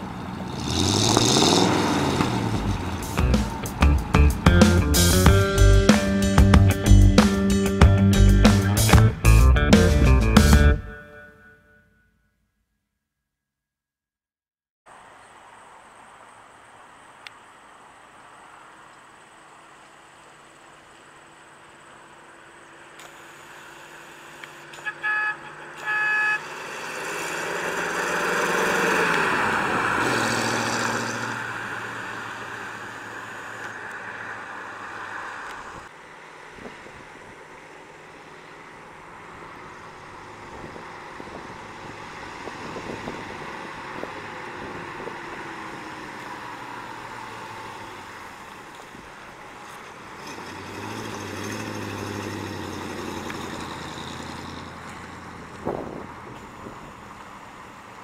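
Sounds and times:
car engine driving past: 0:00.0 - 0:05.2, 0:25.5 - 0:35.9, 0:37.8 - 0:57.7
car horn honk: 0:24.6 - 0:26.7.

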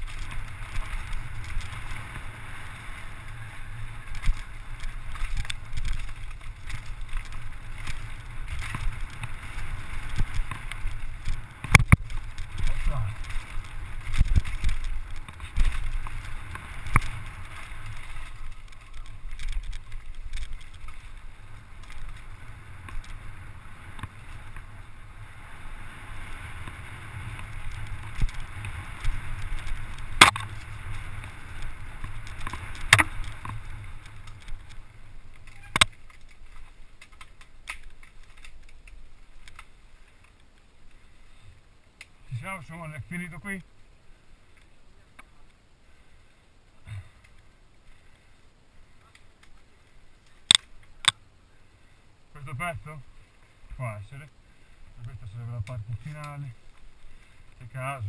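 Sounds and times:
bike clacking over bumps: 0:00.0 - 0:25.4, 0:26.1 - 0:40.3
wind rumbling on microphone: 0:00.0 - 0:39.6
tyres rolling over dirt: 0:00.0 - 0:41.4, 0:52.3 - 0:58.0.

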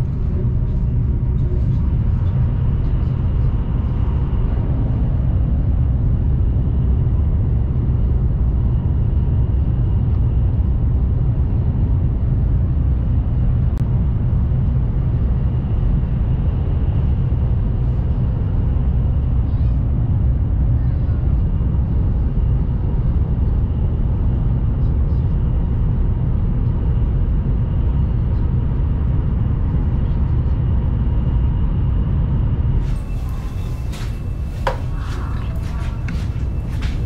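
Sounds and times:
train rumble inside cabin: 0:00.0 - 0:37.0
faint steady whine: 0:32.8 - 0:37.0.

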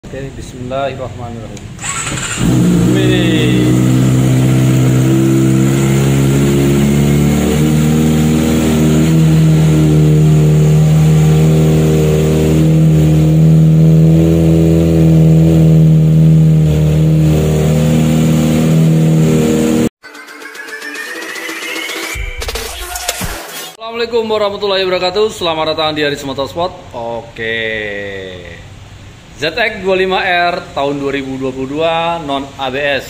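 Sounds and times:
motorcycle engine running: 0:01.8 - 0:19.9.

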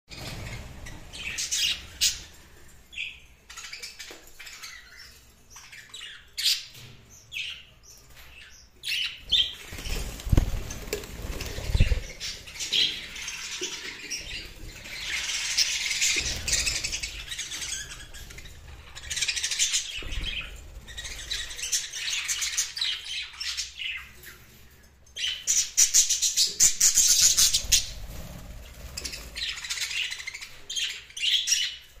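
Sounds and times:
budgerigars chattering and chirping: 0:00.1 - 0:06.8, 0:11.7 - 0:24.5, 0:28.9 - 0:31.9
wings fluttering: 0:09.2 - 0:13.8, 0:27.3 - 0:30.5.

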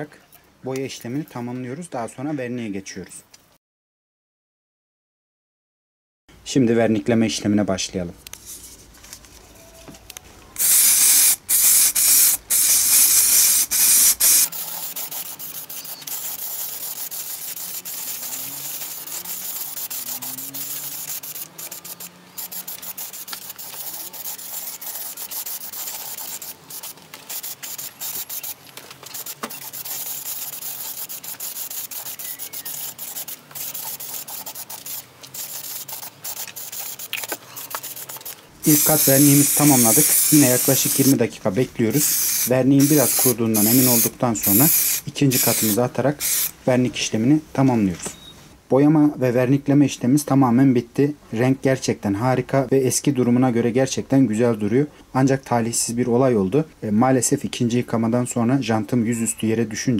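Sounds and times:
aerosol spray hissing: 0:10.6 - 0:28.6, 0:29.2 - 0:41.2, 0:41.9 - 0:46.6.

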